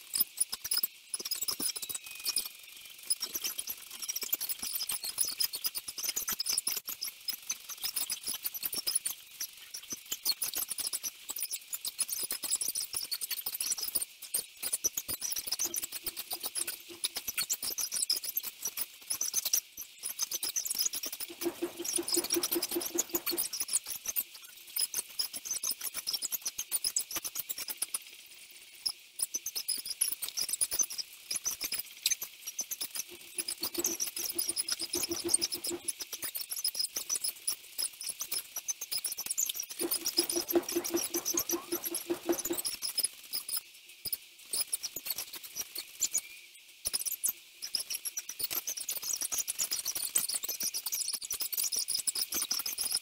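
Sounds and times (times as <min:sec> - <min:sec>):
sped-up squeaks and clicks: 0:00.0 - 0:53.0
evenly spaced pulses: 0:21.3 - 0:23.5, 0:33.1 - 0:35.9.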